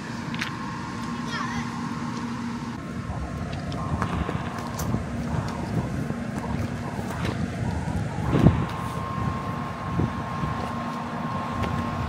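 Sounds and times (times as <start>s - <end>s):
faint steady hum: 0.0s - 12.0s
wind rumbling on microphone: 2.7s - 12.0s.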